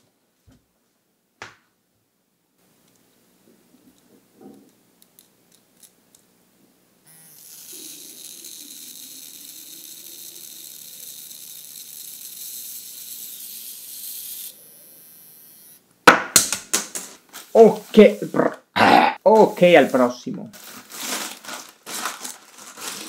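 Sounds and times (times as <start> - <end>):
steady high hiss: 17.0 - 21.8.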